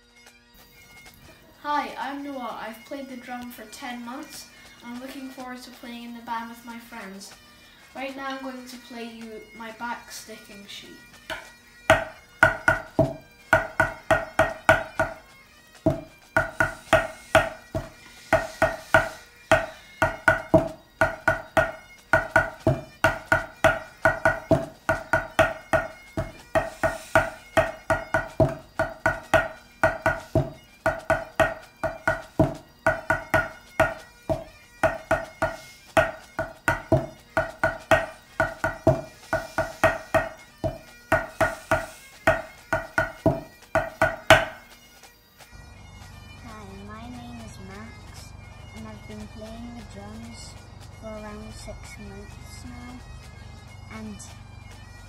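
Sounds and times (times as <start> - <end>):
drumsticks on a practice pad: 11.3 - 44.8.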